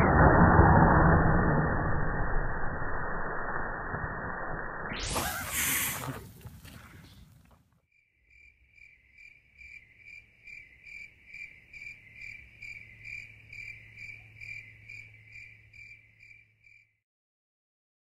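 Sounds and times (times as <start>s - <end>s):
cricket chirping: 7.9s - 17.0s.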